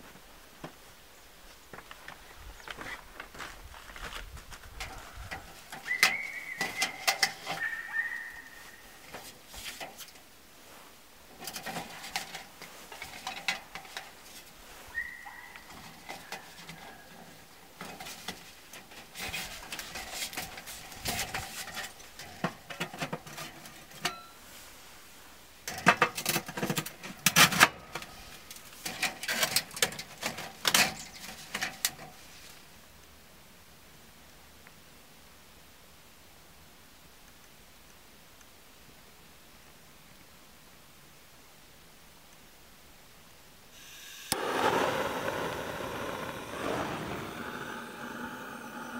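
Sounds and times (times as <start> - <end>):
metal flue pipe crinkling: 1.8 - 7.7, 11.3 - 14.9, 15.6 - 24.7, 25.6 - 32.6
faint bird whistle: 5.8 - 9.0, 14.9 - 17.1.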